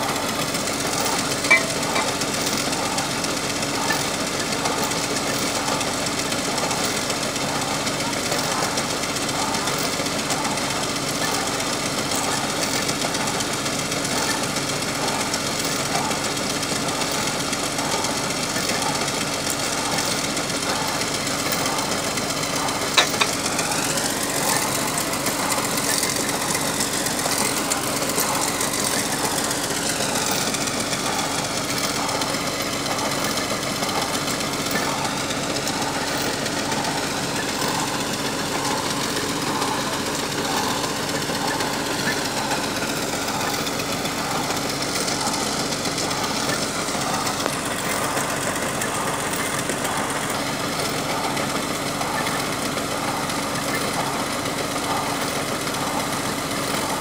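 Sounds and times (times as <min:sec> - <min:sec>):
drilling rig engine knocking: 0:00.0 - 0:57.0
high mechanical whine: 0:00.0 - 0:57.0.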